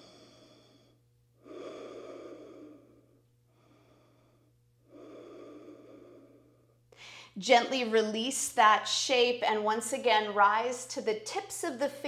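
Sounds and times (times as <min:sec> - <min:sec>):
woman breathing slowly: 0:00.0 - 0:07.4.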